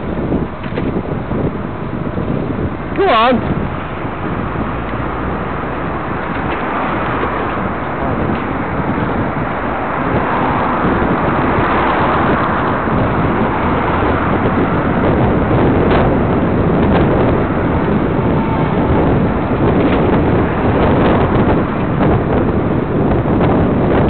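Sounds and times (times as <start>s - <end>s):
road and traffic noise: 0.0s - 24.0s
wind rushing over microphone: 0.0s - 24.0s.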